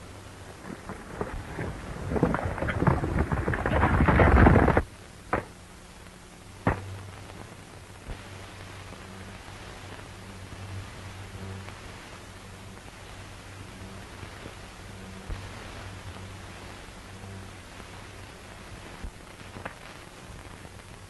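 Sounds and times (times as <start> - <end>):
film soundtrack hum: 0.0 - 21.0
horses galloping hoofbeats: 0.6 - 4.8.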